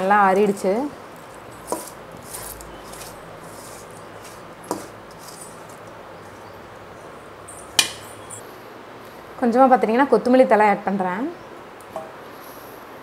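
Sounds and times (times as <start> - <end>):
food scraped by hand rustling: 1.1 - 6.5.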